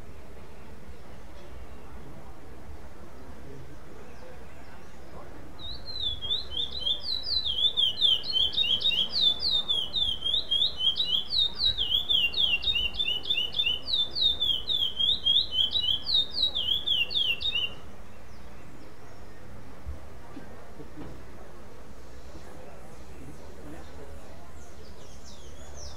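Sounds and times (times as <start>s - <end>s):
finch singing whistled notes: 5.6s - 19.2s.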